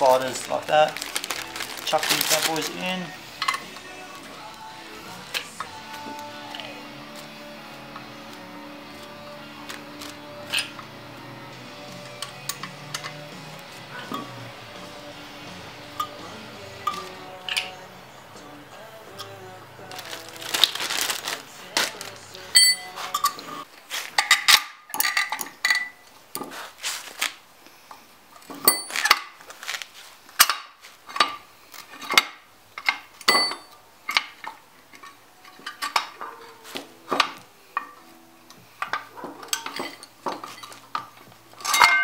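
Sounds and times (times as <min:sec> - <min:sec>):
metal tools and parts clinking: 0:01.3 - 0:03.8, 0:09.7 - 0:10.9, 0:12.1 - 0:13.2, 0:16.0 - 0:16.2, 0:22.5 - 0:26.5, 0:28.3 - 0:29.4, 0:30.4 - 0:36.4, 0:38.8 - 0:42.0.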